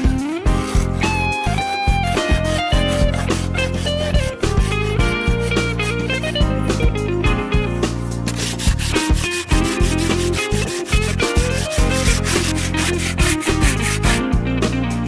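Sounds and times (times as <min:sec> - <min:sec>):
guitar background music: 0:00.0 - 0:15.0
sandpaper rubbing wood: 0:00.6 - 0:01.2, 0:02.2 - 0:06.2, 0:08.3 - 0:14.2.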